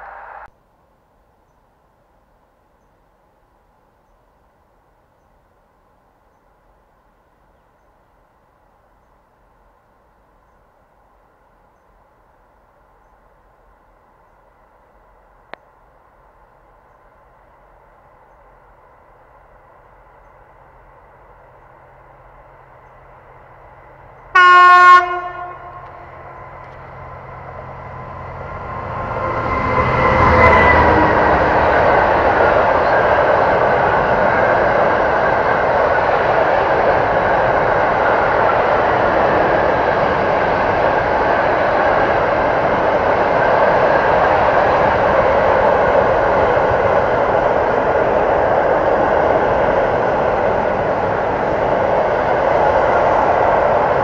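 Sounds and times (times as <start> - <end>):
locomotive passing: 15.1 - 54.0
train horn blast: 24.3 - 26.2, 29.1 - 31.6.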